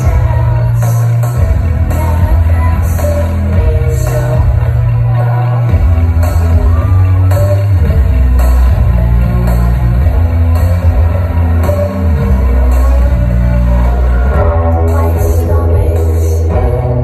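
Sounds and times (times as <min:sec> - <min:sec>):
woman singing: 0:00.0 - 0:09.8, 0:13.8 - 0:17.0
deep bass notes: 0:00.0 - 0:17.0
live band playing: 0:00.0 - 0:17.0.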